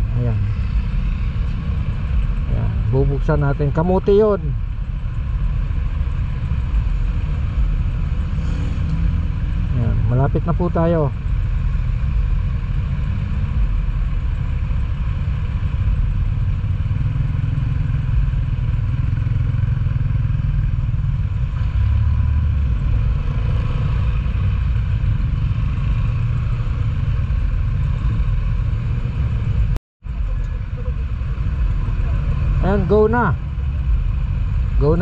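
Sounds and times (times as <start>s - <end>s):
traffic noise: 0.0s - 35.0s
motorcycle engine idling: 10.0s - 21.5s.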